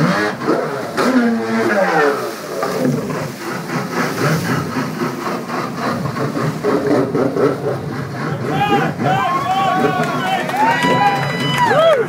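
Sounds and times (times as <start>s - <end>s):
jet ski engine running: 0.0s - 12.0s
water churning: 0.0s - 12.0s.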